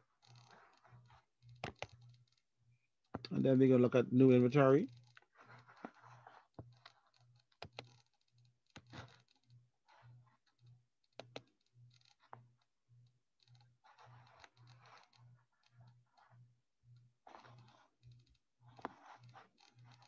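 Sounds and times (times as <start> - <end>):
computer mouse clicks: 0.3 - 2.4, 4.9 - 12.6, 13.4 - 20.0.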